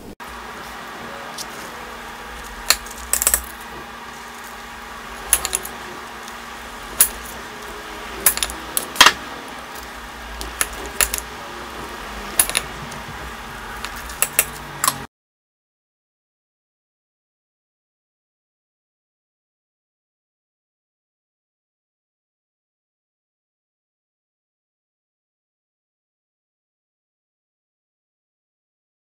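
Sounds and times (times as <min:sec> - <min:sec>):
steady low hiss: 0:00.0 - 0:15.1.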